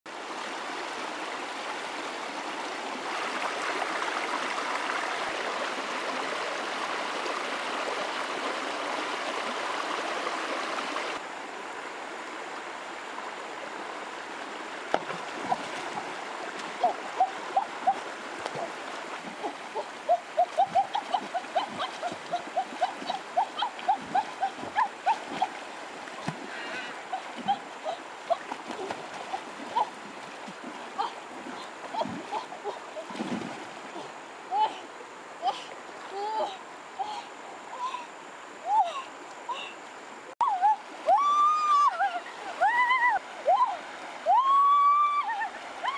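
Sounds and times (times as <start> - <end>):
stream water running over stones: 0.1 - 45.9
splashes and plops in water: 14.9 - 34.1.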